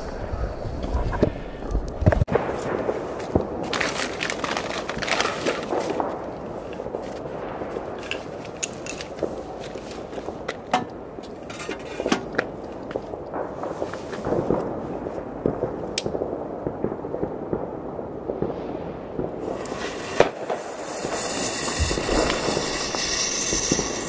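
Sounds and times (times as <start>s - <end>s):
distant fireworks popping: 0.1s - 24.0s
firework bang: 18.3s - 24.0s
rocket fuse hissing: 19.4s - 24.0s.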